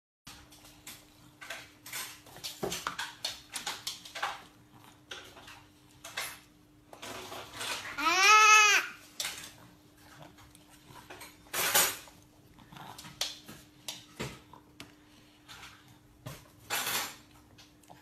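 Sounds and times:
toddler crying out: 7.9s - 9.0s.

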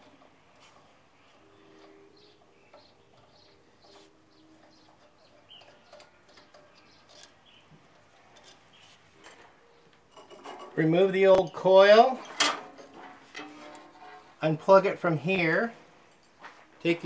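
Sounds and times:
faint bird chirps: 1.1s - 7.8s.

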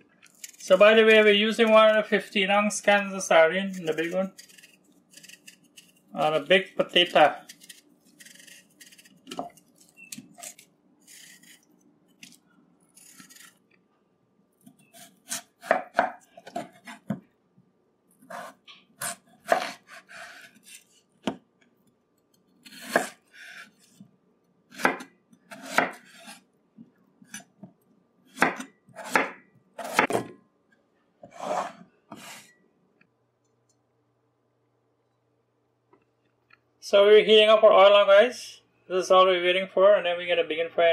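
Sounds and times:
knife peeling potato scraping: 3.5s - 13.6s, 22.6s - 24.0s
knife chopping on wooden board: 15.3s - 17.2s, 24.7s - 26.3s, 28.4s - 30.3s.

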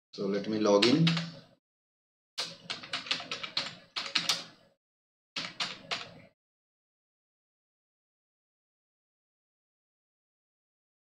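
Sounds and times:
keyboard keys clicking: 2.4s - 4.5s, 5.4s - 6.2s.

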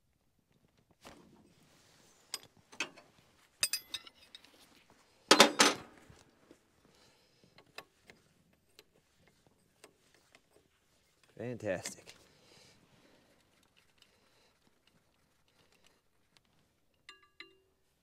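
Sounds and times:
wrench clinking on metal fittings: 3.6s - 4.5s, 5.3s - 5.8s, 16.9s - 17.7s.

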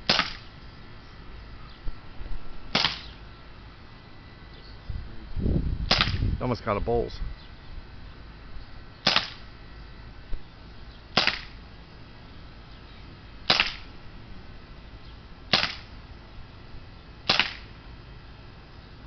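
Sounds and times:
air pistol shots popping: 0.0s - 0.5s, 2.7s - 3.2s, 5.9s - 6.3s, 9.0s - 9.5s, 11.1s - 11.6s, 13.4s - 13.9s, 15.5s - 16.0s, 17.2s - 17.7s.

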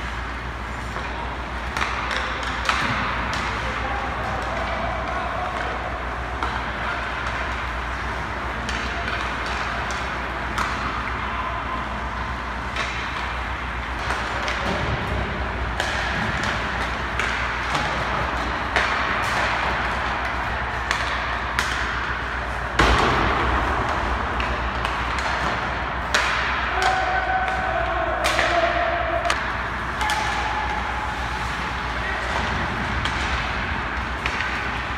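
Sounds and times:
low rink hum: 0.0s - 34.9s
pucks smacked off sticks: 32.3s - 34.9s.

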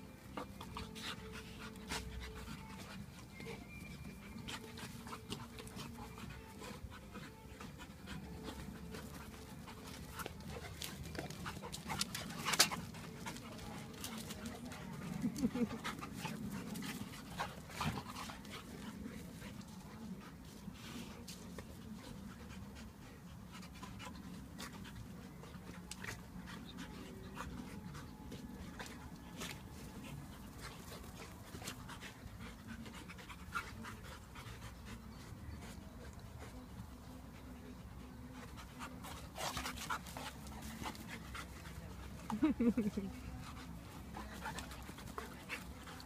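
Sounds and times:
dogs panting hard: 0.0s - 46.0s.

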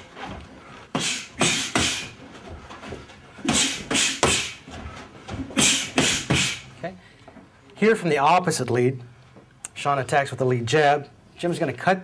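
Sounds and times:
boxing gloves hitting pads: 0.9s - 2.2s, 3.4s - 6.6s.

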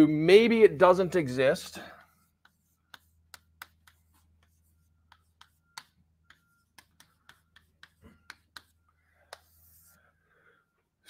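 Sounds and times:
chalk tapping on blackboard: 2.0s - 10.0s.

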